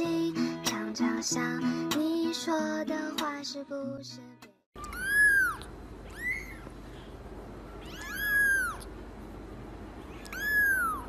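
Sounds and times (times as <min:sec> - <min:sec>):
kitten mewing: 0:04.8 - 0:06.7, 0:07.7 - 0:08.9, 0:10.1 - 0:11.0.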